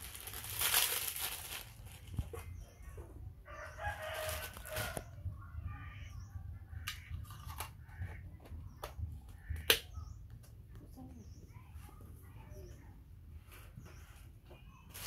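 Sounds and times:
plastic packaging crinkling: 0.0 - 2.6, 3.8 - 5.0.

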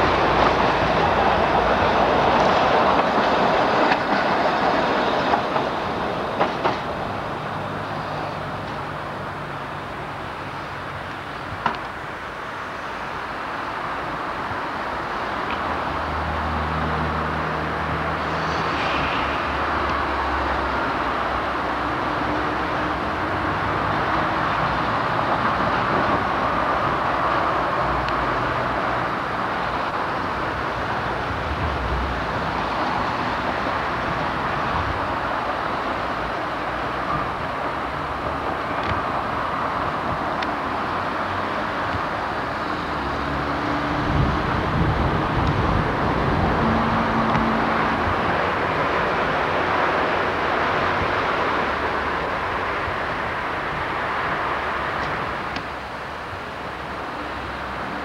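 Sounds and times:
road traffic roar: 0.0 - 58.0
wind: 0.0 - 58.0
low rumble of passing vehicles: 13.4 - 58.0.

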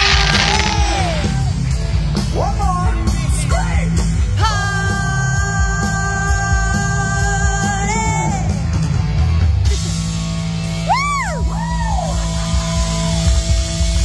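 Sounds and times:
high swooping guitar note: 0.0 - 1.8
live rock band playing: 0.0 - 14.0.

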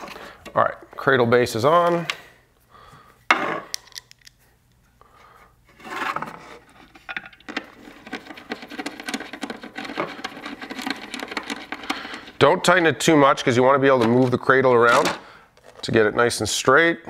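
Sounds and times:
scrape on plastic: 5.7 - 6.9.

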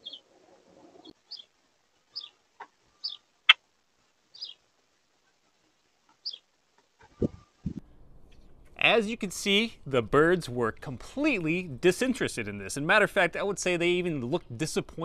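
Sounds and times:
short high bird chirps: 1.3 - 1.5, 3.0 - 3.2, 4.3 - 4.6, 6.2 - 6.4.

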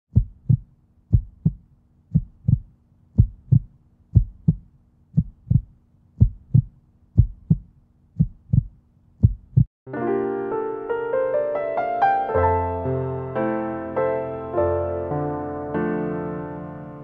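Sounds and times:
heartbeat thumps: 0.1 - 9.7.

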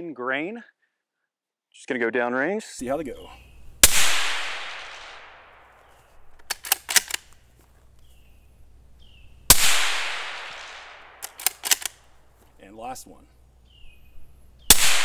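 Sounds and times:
suppressed rifle shot: 3.8 - 5.9, 9.5 - 12.1, 14.7 - 15.0
rifle bolt clicking: 6.4 - 7.4, 11.2 - 12.1.

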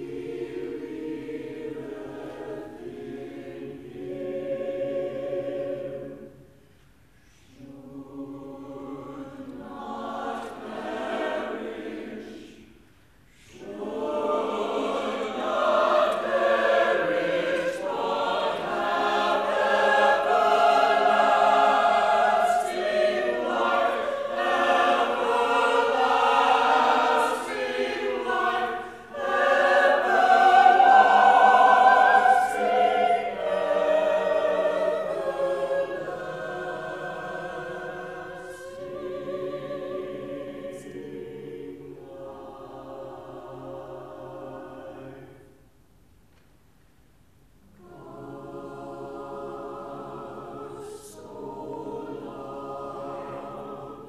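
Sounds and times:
mixed choir singing: 0.0 - 6.6, 7.3 - 45.6, 47.7 - 54.0.

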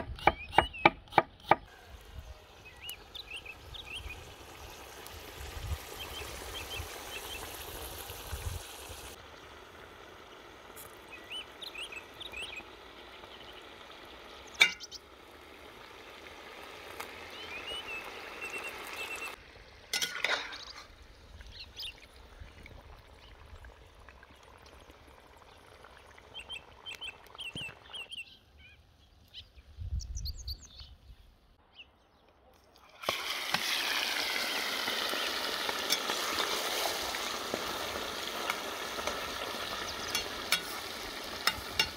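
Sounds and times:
small birds chirping: 0.1 - 8.1, 9.2 - 15.1, 17.0 - 19.4, 20.5 - 32.5
potatoes sizzling in oil: 2.0 - 22.2, 33.0 - 41.9.

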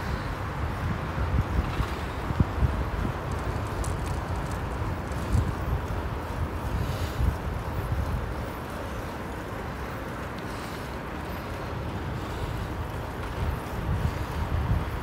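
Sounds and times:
wind on microphone: 0.0 - 9.1, 12.1 - 15.0
road noise: 0.0 - 15.0.

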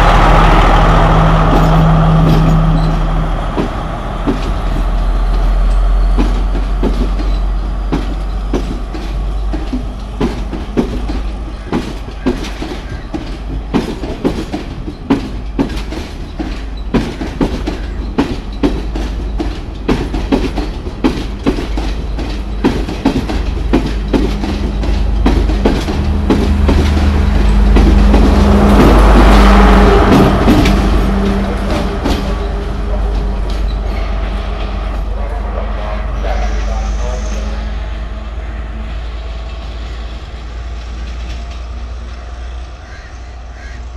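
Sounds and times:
diesel engine drone: 0.0 - 43.9
train wheels clicking over rail joints: 0.0 - 43.9.

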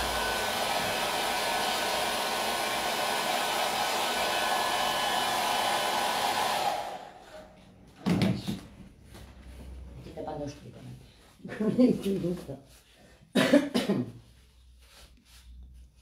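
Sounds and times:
hair dryer blowing: 0.0 - 7.5.

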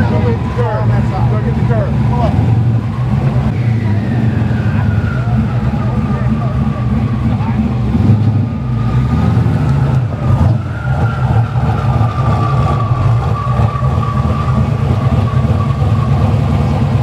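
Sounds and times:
car engine idling: 0.0 - 17.0.

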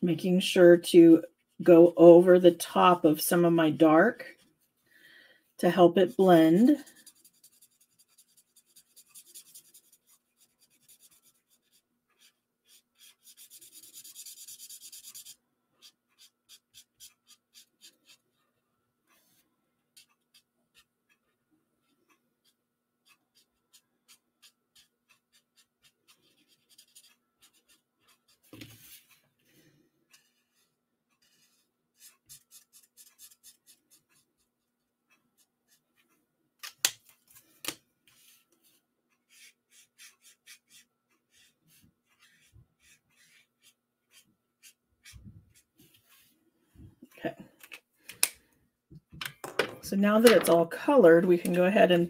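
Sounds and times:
marker scratching on card: 6.0 - 18.3, 22.4 - 29.1, 31.2 - 34.4, 39.3 - 46.2.

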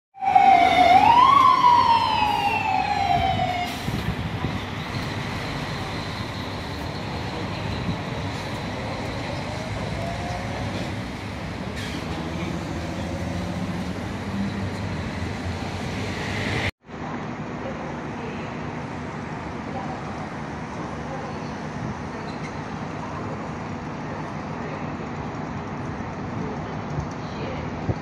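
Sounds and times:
siren wailing: 0.2 - 4.0
traffic noise: 0.2 - 28.0.

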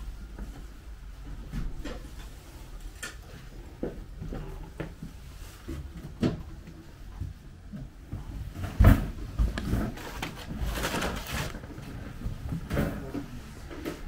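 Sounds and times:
knocks and handling noise: 0.2 - 14.0
scraping or rustling: 8.4 - 14.0.

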